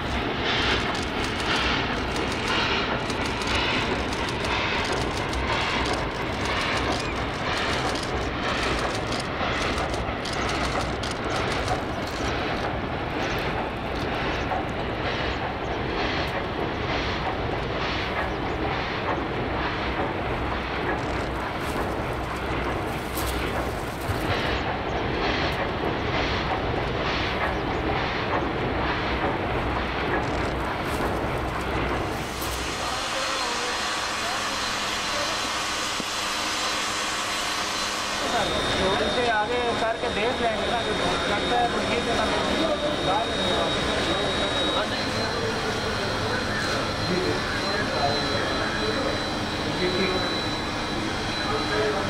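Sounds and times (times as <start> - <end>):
steam locomotive exhaust chuffing: 0.0 - 52.0
train rumble: 0.0 - 52.0.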